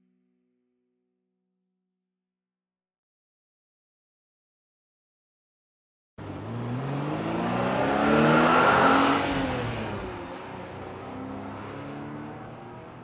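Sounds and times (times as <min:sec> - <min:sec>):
car engine accelerating: 0:06.2 - 0:13.0.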